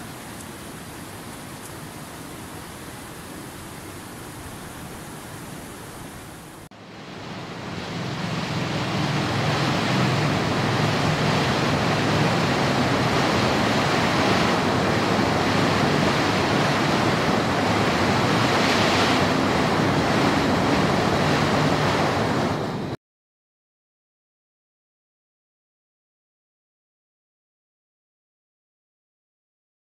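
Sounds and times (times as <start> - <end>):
rushing river water: 0.0 - 23.0
white-water rapids over rock: 7.3 - 22.6.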